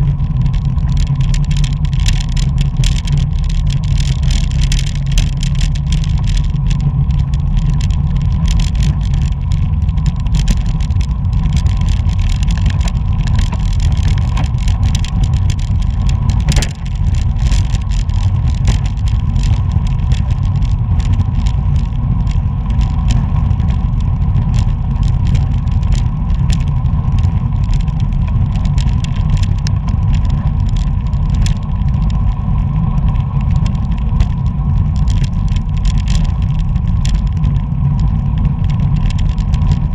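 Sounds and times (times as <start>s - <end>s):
bicycle ticks and rattles: 0.0s - 39.9s
wind buffeting microphone: 0.0s - 39.9s.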